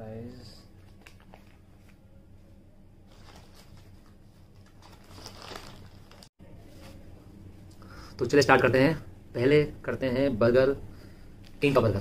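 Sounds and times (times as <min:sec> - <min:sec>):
low steady hum: 0:00.0 - 0:12.0
paper bag rustling and crinkling: 0:03.1 - 0:06.3.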